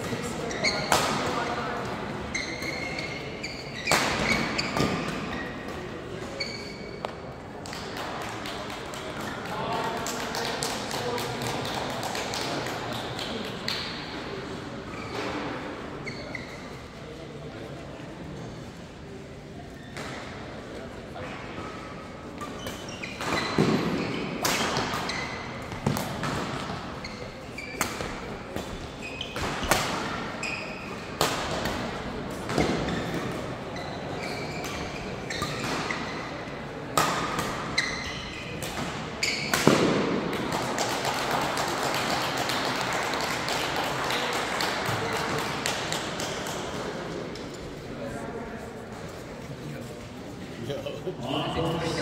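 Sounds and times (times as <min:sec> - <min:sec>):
shoes squeaking on sports floor: 0:00.0 - 0:07.3, 0:14.9 - 0:17.1, 0:19.7 - 0:20.3, 0:21.6 - 0:31.2, 0:32.4 - 0:40.0
sports hall noise: 0:00.0 - 0:52.0
racquets hitting shuttlecock: 0:22.4 - 0:27.0, 0:31.1 - 0:33.5, 0:36.9 - 0:46.8.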